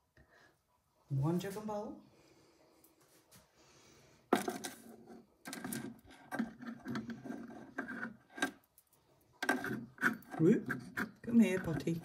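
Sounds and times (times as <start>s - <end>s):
ceramic rubbing and scraping on wood: 4.4s - 8.6s, 9.3s - 12.0s.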